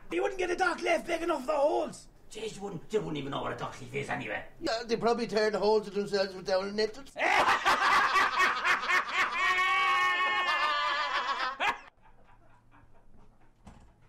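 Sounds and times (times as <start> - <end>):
man laughing loudly: 7.2 - 13.5.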